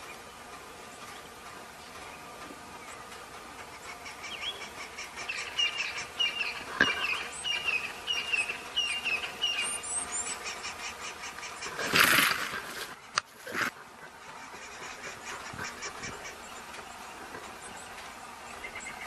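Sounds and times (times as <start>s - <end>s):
faint high ticking: 0.0s - 11.8s
bird chirping: 0.0s - 12.0s, 14.1s - 19.0s.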